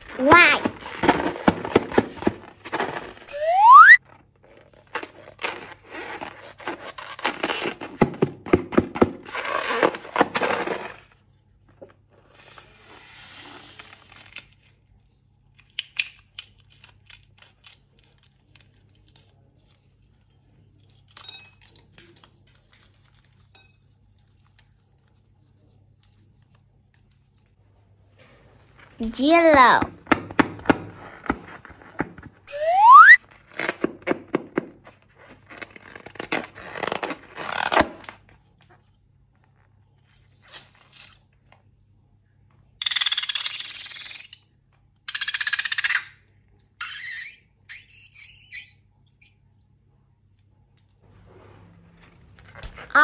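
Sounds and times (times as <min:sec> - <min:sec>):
loud rising whistle: 0:03.3 - 0:04.0, 0:32.5 - 0:33.2
packaging crinkling and tearing: 0:04.0 - 0:08.2, 0:09.0 - 0:11.2, 0:13.6 - 0:14.8, 0:15.6 - 0:21.0, 0:21.7 - 0:23.5, 0:33.2 - 0:38.4.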